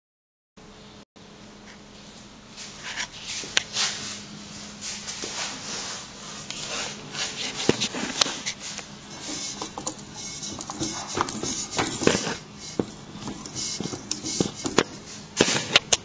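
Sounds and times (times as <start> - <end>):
low hum: 8.8 - 15.9.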